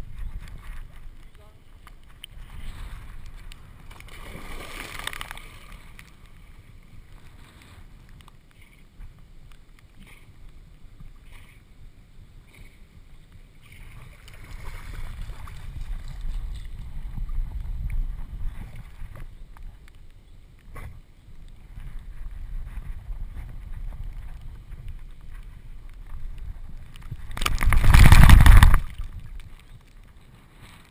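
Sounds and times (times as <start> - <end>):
low rumble of water on camera: 0.0 - 30.9
water sloshing and splashing: 1.8 - 6.5, 13.6 - 16.9.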